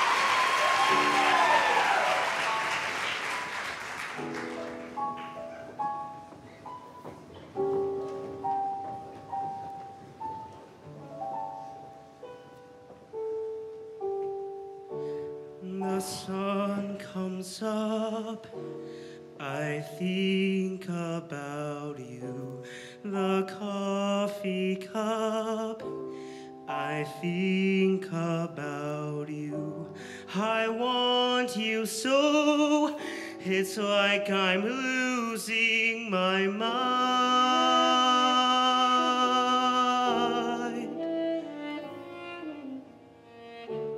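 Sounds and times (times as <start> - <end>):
piano ballad: 0.0 - 43.9
man singing with vibrato: 15.6 - 18.7, 19.3 - 25.9, 26.6 - 41.1.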